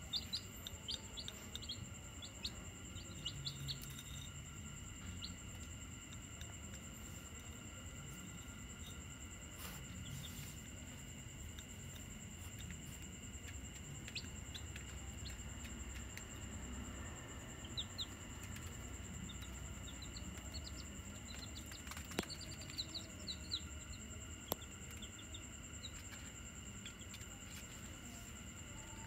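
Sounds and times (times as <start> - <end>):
chicks peeping: 0.0 - 7.6, 11.4 - 16.5, 17.3 - 27.9.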